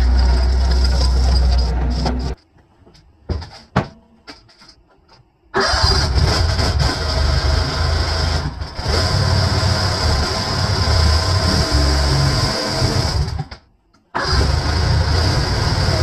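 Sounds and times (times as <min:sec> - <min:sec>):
roller engine starting and running: 0:00.0 - 0:02.4, 0:05.6 - 0:13.6, 0:14.2 - 0:16.0
skid steer engine running: 0:00.0 - 0:02.4.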